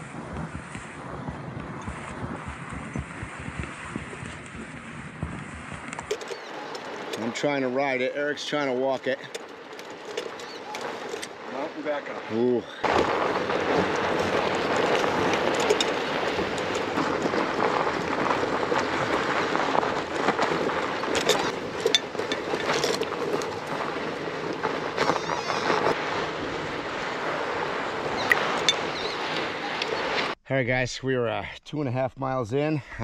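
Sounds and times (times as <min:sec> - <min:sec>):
bike tyres rushing over sand: 0:00.0 - 0:30.4
bike clicks and rattles: 0:01.8 - 0:11.9, 0:12.7 - 0:26.0.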